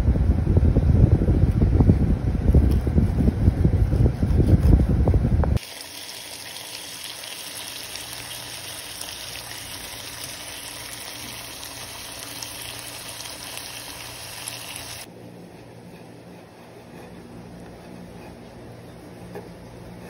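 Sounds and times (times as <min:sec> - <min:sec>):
chicken sizzling in a pan: 0:05.6 - 0:15.1.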